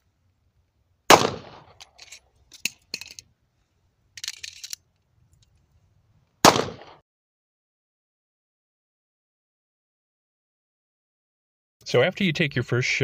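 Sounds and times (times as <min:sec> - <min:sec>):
pistol shot: 0:01.1 - 0:01.8, 0:06.4 - 0:07.0
gun handling clicks and rattle: 0:01.4 - 0:06.4.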